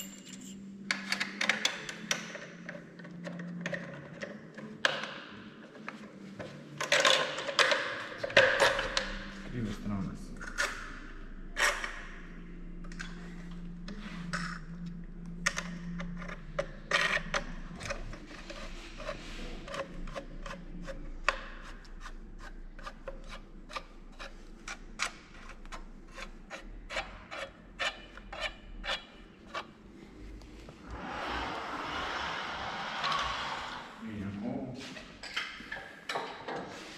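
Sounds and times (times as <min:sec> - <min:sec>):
low steady hum: 0:00.0 - 0:35.2
metal clicks taps and scrapes: 0:12.8 - 0:29.7.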